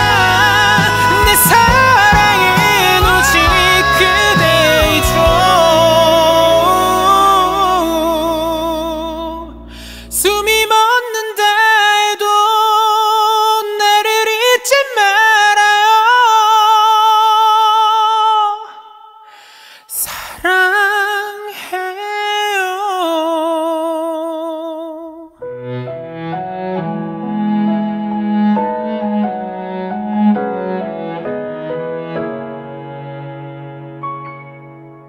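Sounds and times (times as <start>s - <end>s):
woman singing wordless notes: 0.0s - 9.4s
strings: 0.0s - 10.5s, 25.4s - 35.0s
piano: 0.0s - 19.0s, 25.2s - 35.0s.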